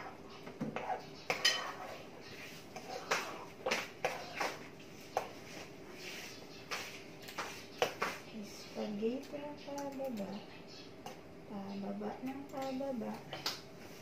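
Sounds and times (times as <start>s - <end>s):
faint steady hum: 0.0s - 14.0s
plates and utensils clicking: 0.8s - 1.8s.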